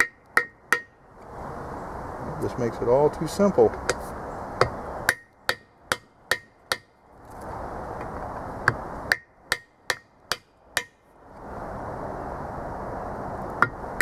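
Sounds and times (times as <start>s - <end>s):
hammer striking metal driver: 0.0s - 0.9s, 5.1s - 6.9s.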